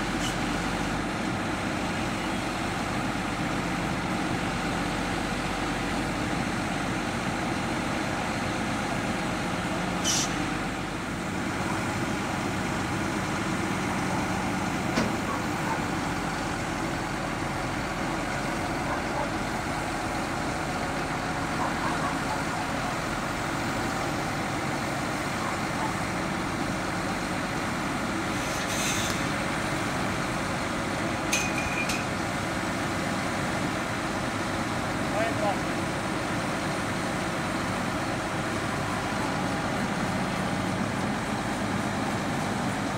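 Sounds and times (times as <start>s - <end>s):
diesel engine running: 0.0s - 42.9s
short hisses: 10.0s - 10.4s, 28.3s - 29.3s.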